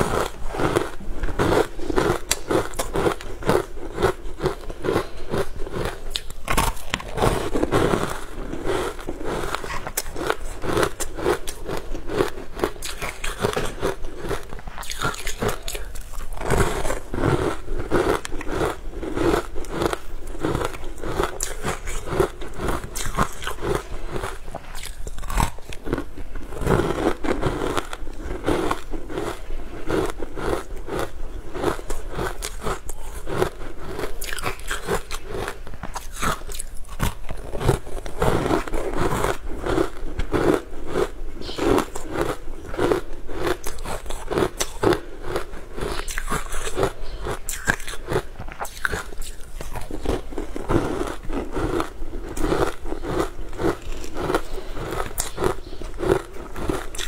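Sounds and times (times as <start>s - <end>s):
frozen food crunching: 0.0s - 57.0s.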